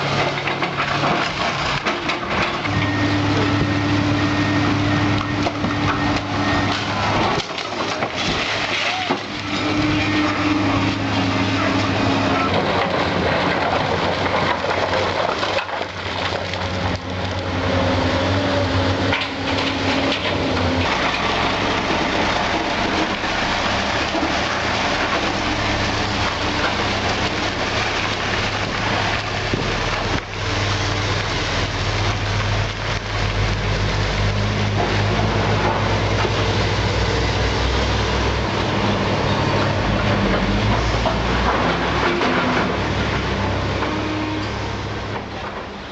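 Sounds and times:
concrete rubble crunching and clattering: 0.0s - 3.8s, 5.0s - 37.1s, 38.5s - 44.3s
diesel engines running: 0.0s - 45.9s.

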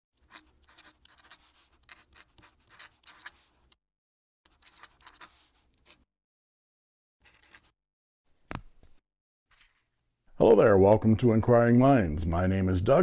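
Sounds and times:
pen nib scratching on paper: 0.2s - 3.5s, 4.5s - 6.0s.

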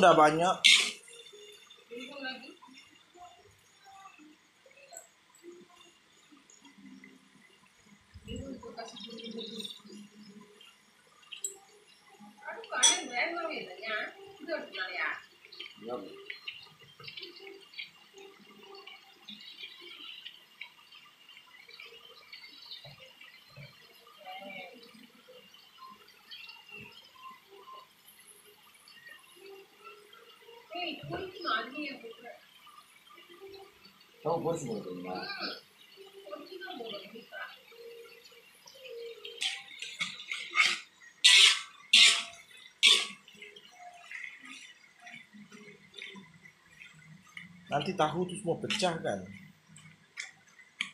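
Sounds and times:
metal spatula scraping wok: 0.6s - 1.0s, 40.3s - 43.2s
tofu sizzling in oil: 10.0s - 44.1s.

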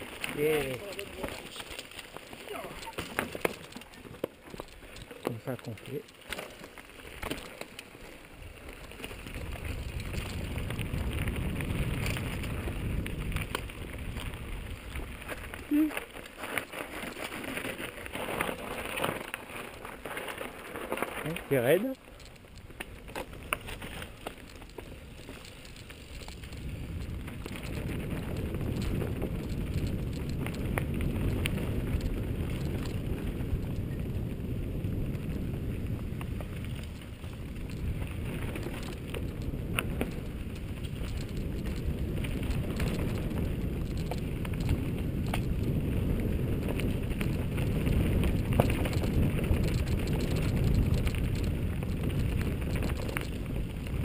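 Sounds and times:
bike clicks and rattles: 0.0s - 54.0s
tyres crunching on dirt: 0.0s - 54.0s
wind rushing on microphone: 9.1s - 15.9s, 26.1s - 54.0s.

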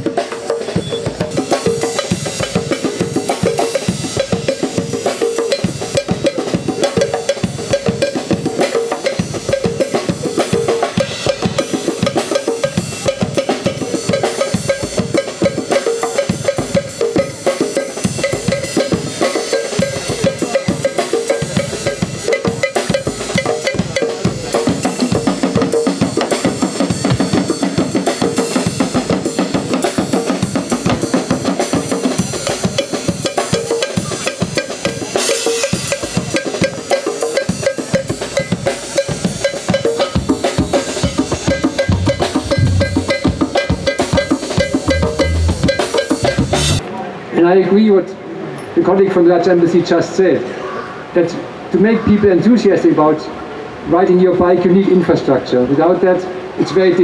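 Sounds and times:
drum kit beat: 0.0s - 34.3s, 37.9s - 46.8s
sustained instrumental notes: 41.2s - 43.6s, 44.9s - 46.3s.

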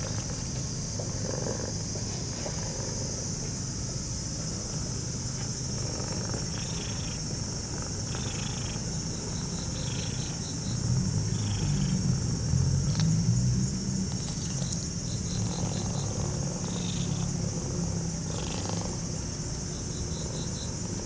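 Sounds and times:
cat purring: 1.0s - 1.8s, 5.8s - 10.4s, 11.2s - 12.0s, 15.3s - 19.0s.

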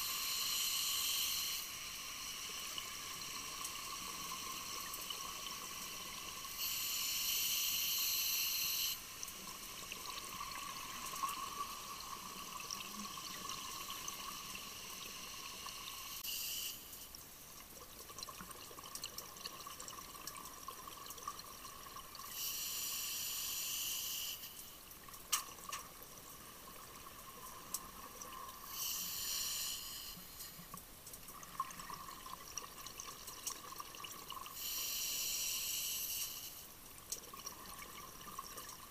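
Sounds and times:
regulator breathing hiss: 0.0s - 9.2s, 13.8s - 17.1s, 22.3s - 24.8s, 28.6s - 30.6s, 34.5s - 36.7s
faint steady tone: 0.0s - 38.9s.

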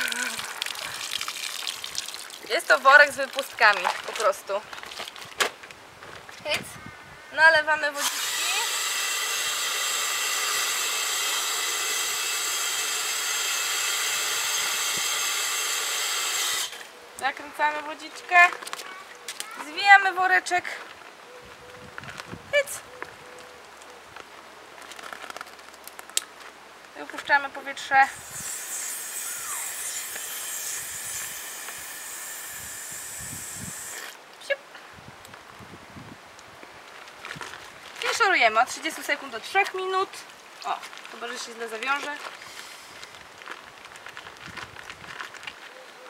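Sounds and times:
water running from tap into bag: 0.0s - 4.3s
air hissing out of bag: 28.1s - 34.2s, 42.4s - 43.2s.

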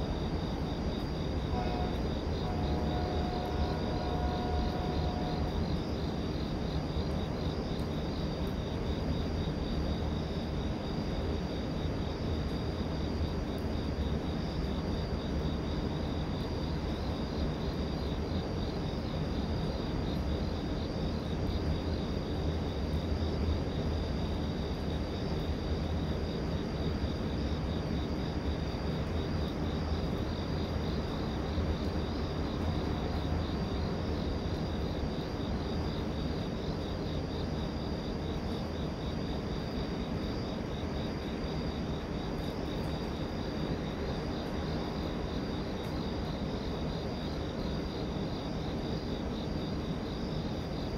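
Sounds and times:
distant train rumbling: 0.0s - 7.3s, 30.0s - 37.2s
crickets chirping: 0.0s - 50.9s.

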